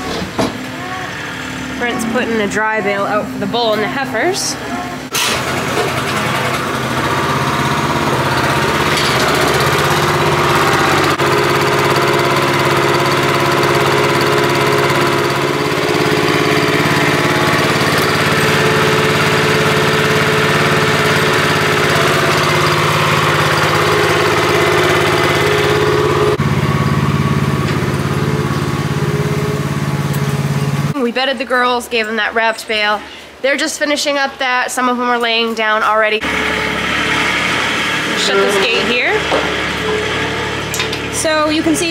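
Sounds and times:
small gasoline engine running: 5.1 - 31.0, 36.2 - 41.9.

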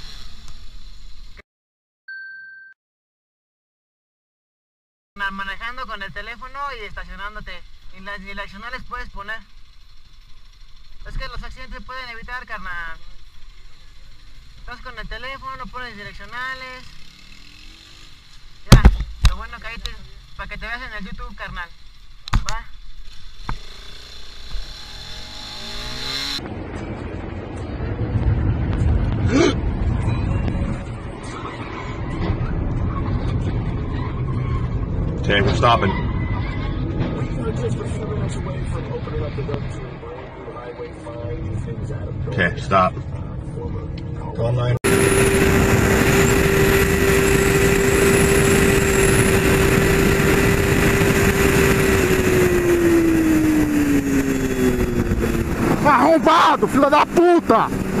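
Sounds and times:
road and engine rumble in car: 5.6 - 58.0
motorcycle engine revving: 6.4 - 42.8, 44.2 - 58.0
wind noise: 44.8 - 58.0.

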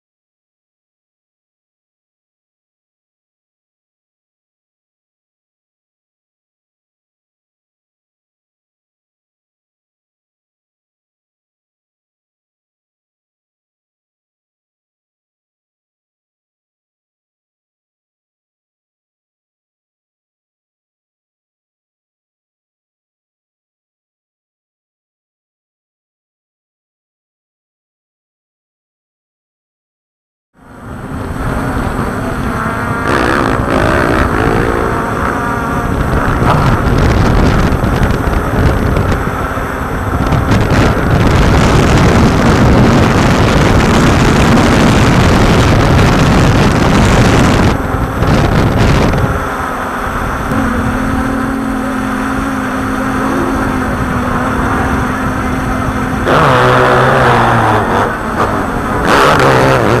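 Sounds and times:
engine-like rising pitches: 30.6 - 60.0
loud motor noise: 30.6 - 60.0
steady hum: 30.6 - 60.0.

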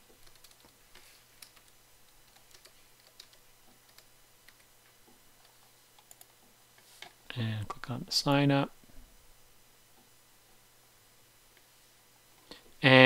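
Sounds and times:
low steady hum: 0.0 - 13.0
keyboard typing: 0.1 - 0.8, 1.4 - 4.7, 5.4 - 6.4.

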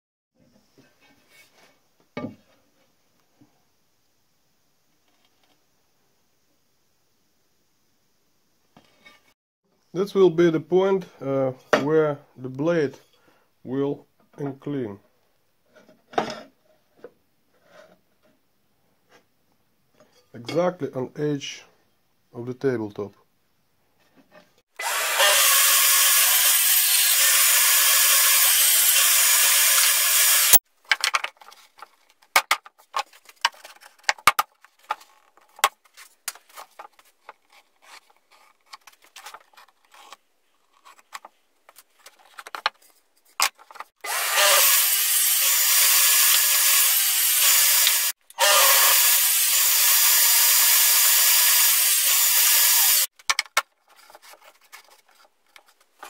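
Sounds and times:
power tool running: 24.8 - 30.6, 44.0 - 53.1
plywood parts clicking and knocking: 30.8 - 43.9, 53.2 - 56.0.

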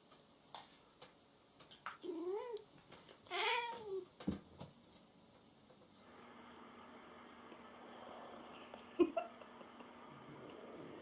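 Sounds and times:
cat meowing: 3.3 - 4.0.

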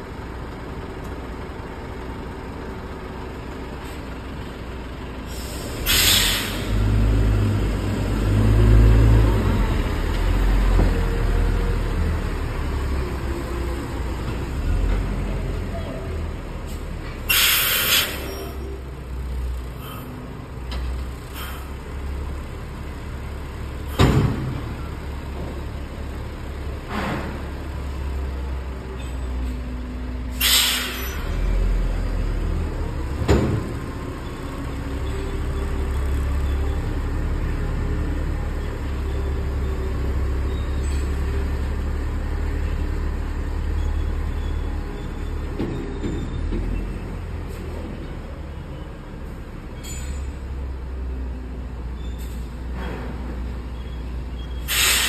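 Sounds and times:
truck diesel engine running: 0.0 - 49.7
air brakes hissing: 5.3 - 6.9, 16.7 - 18.8, 21.3 - 21.8, 30.3 - 31.4, 49.8 - 50.4, 54.6 - 55.0.

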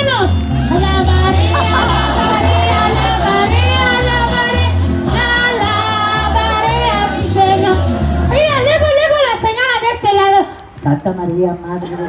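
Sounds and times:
song with pulsing bass: 0.1 - 8.9.

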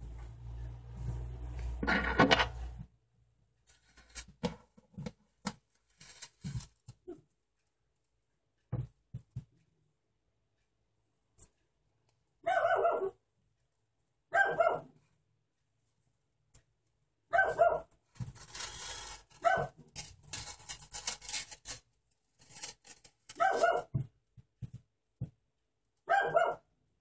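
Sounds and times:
rustling handling noise: 3.7 - 7.0, 18.1 - 23.9
dog barking: 12.4 - 13.2, 14.3 - 15.0, 17.3 - 17.9, 19.4 - 19.8, 23.4 - 24.0, 26.0 - 26.7.

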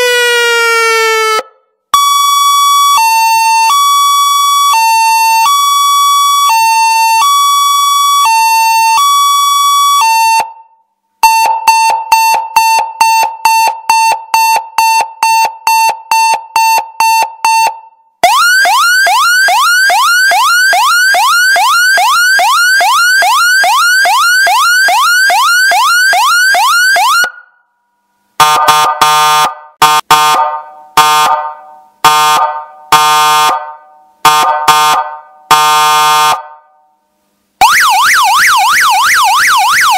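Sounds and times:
electronic siren: 0.0 - 16.4, 17.0 - 27.6, 37.6 - 39.9.

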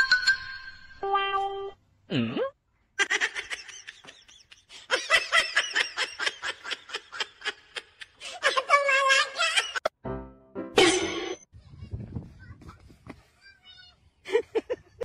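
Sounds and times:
person laughing: 14.3 - 15.0.

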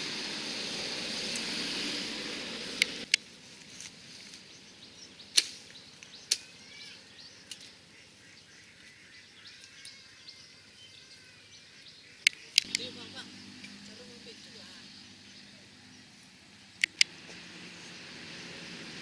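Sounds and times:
steady noise: 0.0 - 3.4
twigs and branches snapping: 5.3 - 6.5.

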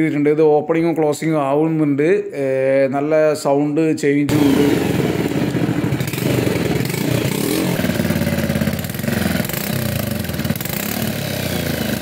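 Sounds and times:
motorcycle engine idling: 4.3 - 12.0.

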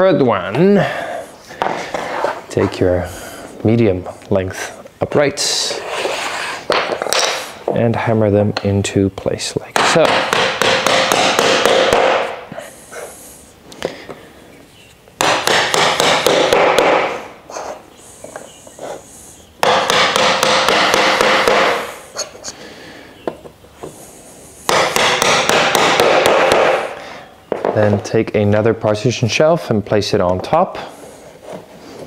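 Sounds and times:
mallet knocking wood: 9.8 - 12.4, 15.2 - 17.1, 19.6 - 21.8, 24.7 - 26.8.

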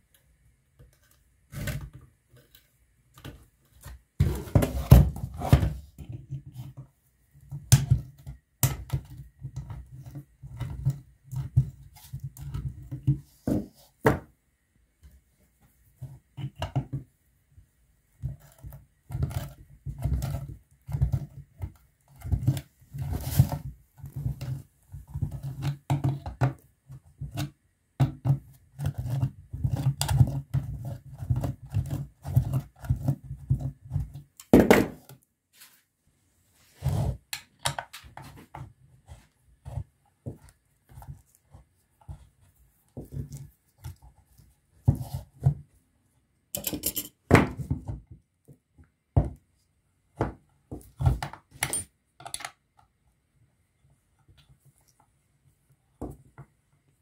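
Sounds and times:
pliers clicking and scraping: 46.6 - 47.2.

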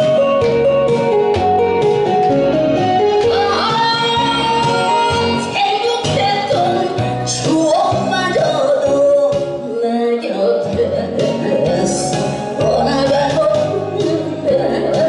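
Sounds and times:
instrumental accompaniment: 0.0 - 15.0
woman singing into a microphone: 3.3 - 15.0.

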